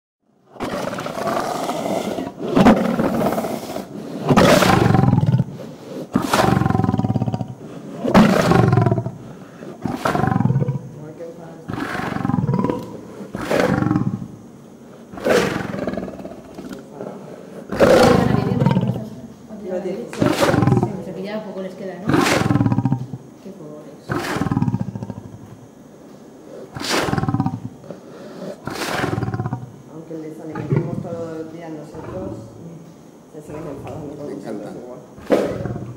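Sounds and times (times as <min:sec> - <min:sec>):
lion roaring: 0:00.5 - 0:10.9, 0:11.7 - 0:14.4, 0:15.1 - 0:19.1, 0:20.2 - 0:21.1, 0:22.0 - 0:23.3, 0:24.1 - 0:25.5, 0:26.5 - 0:29.8, 0:30.5 - 0:32.5, 0:35.2 - 0:35.9.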